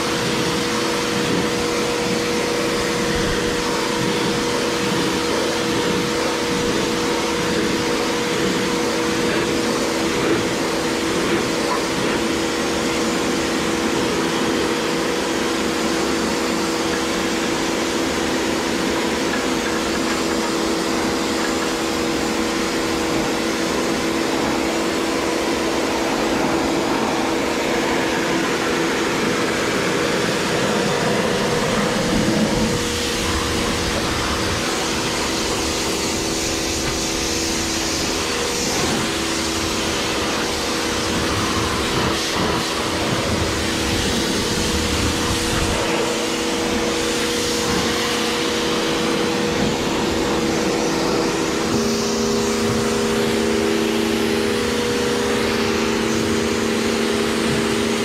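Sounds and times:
machine humming with a hiss: 0.0 - 58.0.

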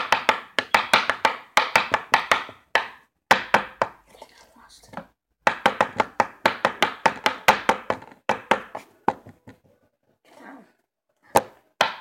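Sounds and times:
pencil tapping on tabletop: 0.0 - 4.0, 4.9 - 9.6.

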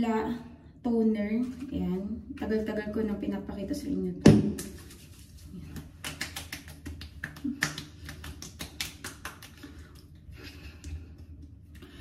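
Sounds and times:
hands patting skin: 4.5 - 11.6.

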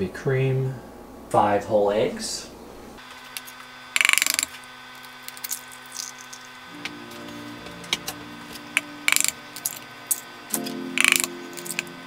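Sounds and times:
eggshell cracking: 4.0 - 6.7, 8.6 - 12.0.

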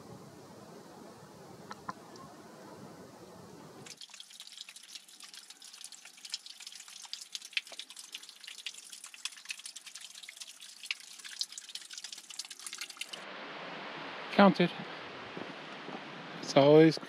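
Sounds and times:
thin water trickle: 3.8 - 13.2
water dripping off rock: 3.8 - 13.2.

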